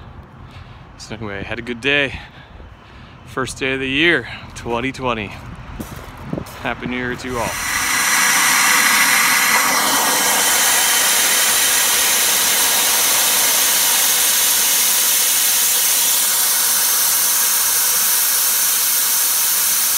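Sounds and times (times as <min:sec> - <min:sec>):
loud steam hiss: 0:07.1 - 0:19.9.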